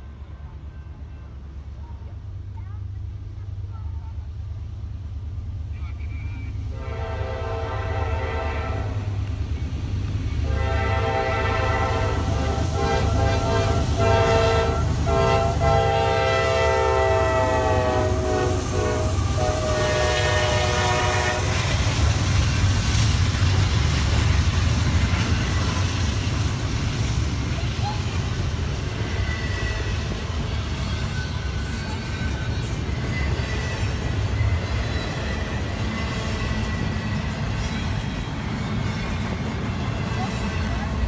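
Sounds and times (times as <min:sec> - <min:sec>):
train wheels on rails: 0:00.0 - 0:41.0
locomotive horn blowing: 0:06.7 - 0:09.1, 0:10.4 - 0:21.8.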